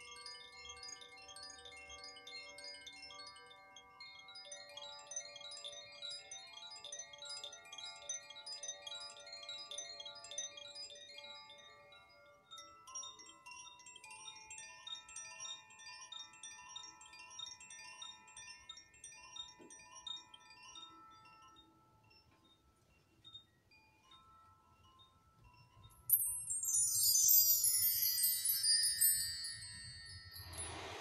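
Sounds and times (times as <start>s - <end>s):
metal chimes ringing: 0.0s - 31.0s.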